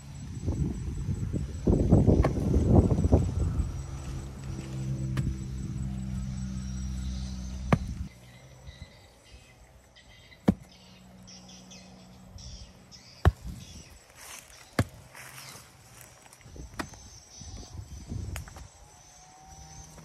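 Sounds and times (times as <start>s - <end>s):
loose earth scraping: 1.9s - 8.4s, 13.2s - 17.7s
hoe chopping into dry soil: 2.0s - 2.8s, 5.0s - 5.5s, 7.5s - 8.1s, 10.4s - 10.8s, 13.2s - 13.8s, 14.5s - 15.6s, 16.6s - 17.1s.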